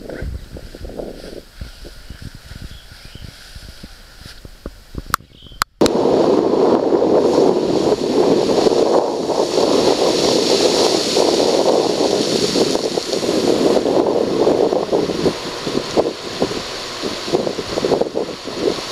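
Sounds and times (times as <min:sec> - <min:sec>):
wind buffeting microphone: 0:00.0 - 0:18.9
ocean surf on rocks: 0:05.8 - 0:18.9.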